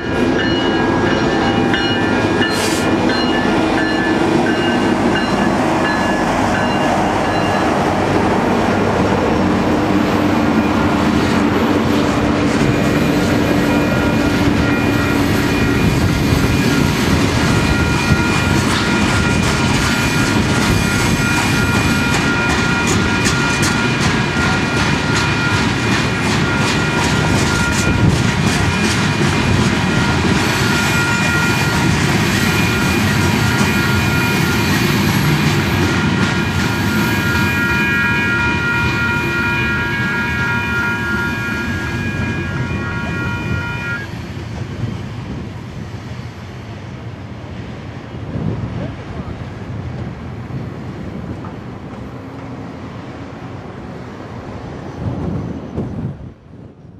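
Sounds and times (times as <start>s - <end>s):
train wheels clattering on rails: 0.0s - 45.9s.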